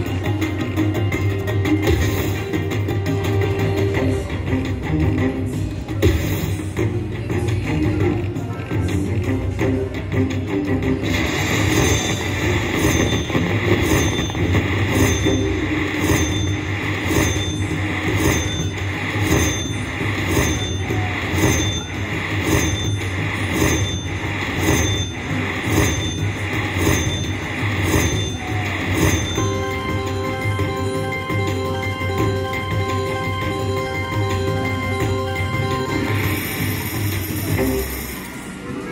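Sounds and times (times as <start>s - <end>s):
slot machine looping chime: 11.0s - 38.7s
casino hum: 11.0s - 38.9s.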